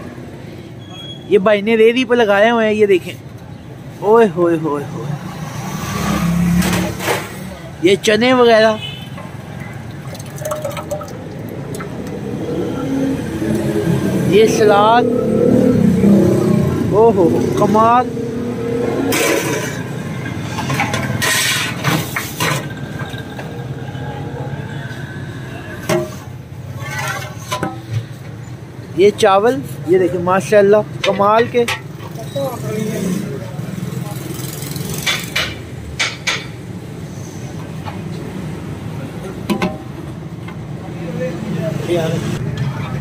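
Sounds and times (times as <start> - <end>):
street traffic: 0.0 - 43.0
metal pots scraping and clanking: 19.0 - 23.6, 25.8 - 28.3.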